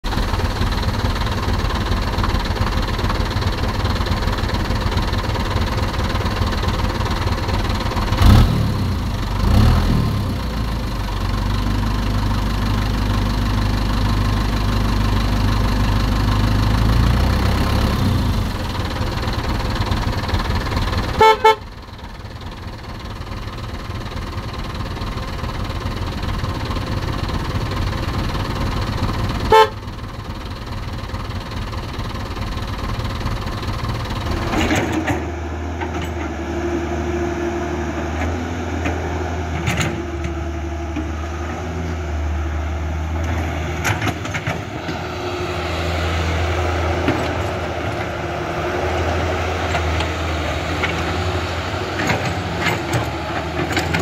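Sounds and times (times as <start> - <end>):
toy horn toots: 21.2 - 21.7, 29.5 - 29.8.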